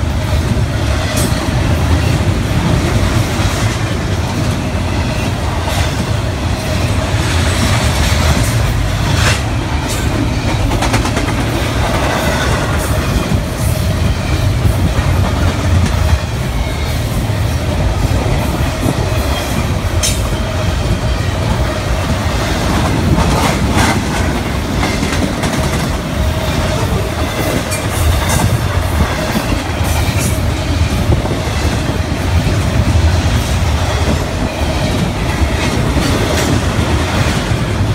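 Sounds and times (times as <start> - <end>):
freight train wheels rumbling: 0.0 - 37.9
wheels clicking over rail joints: 7.6 - 13.8.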